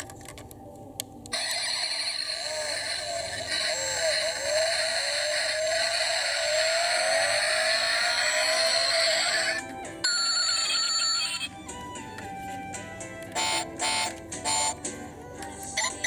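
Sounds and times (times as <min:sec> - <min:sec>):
recorded engine start and rev: 0:01.4 - 0:09.6.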